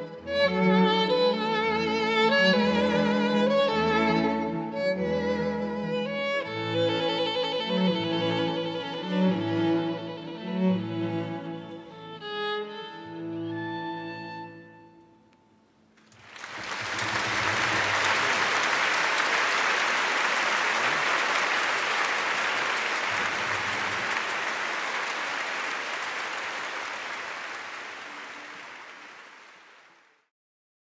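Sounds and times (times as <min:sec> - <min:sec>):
audience applauding: 0:16.0 - 0:30.3.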